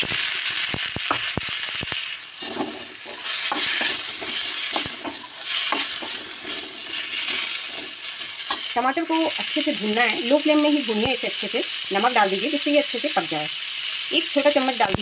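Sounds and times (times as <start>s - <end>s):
tomatoes sizzling in hot oil: 0.0s - 15.0s
steel ladle scraping and clicking: 2.4s - 6.6s.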